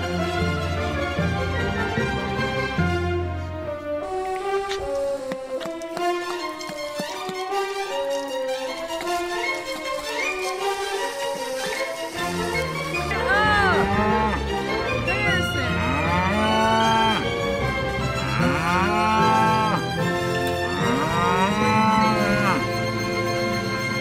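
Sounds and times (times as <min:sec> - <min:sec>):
large farm animal calling: 0:15.0 - 0:17.3, 0:18.2 - 0:19.8, 0:20.8 - 0:22.7.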